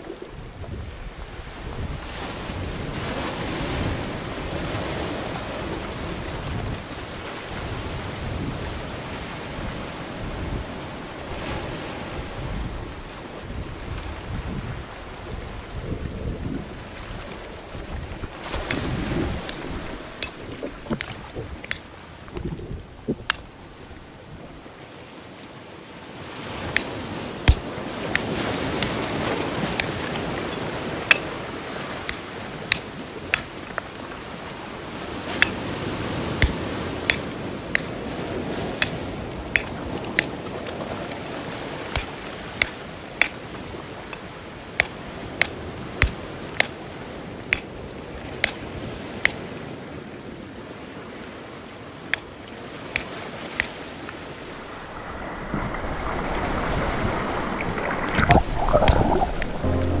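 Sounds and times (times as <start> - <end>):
sea water washing: 16.6 - 24.8, 53.8 - 60.0
water rushing and splashing: 16.6 - 25.2, 53.6 - 60.0.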